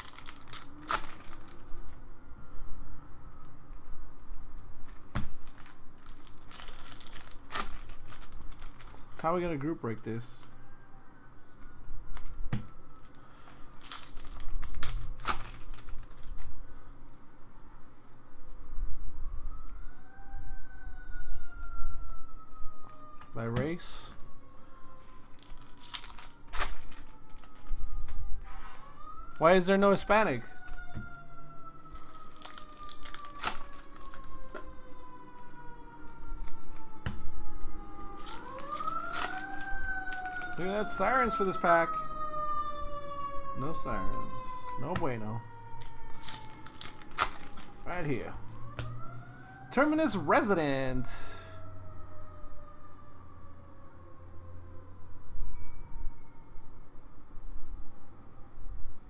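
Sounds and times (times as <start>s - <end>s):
wrapper crinkling and ripping: 0.0s - 2.0s, 4.8s - 9.4s, 13.1s - 16.6s, 25.1s - 28.2s, 31.8s - 34.7s, 37.9s - 41.4s, 45.6s - 48.3s
siren wailing: 0.0s - 4.8s, 5.6s - 58.9s.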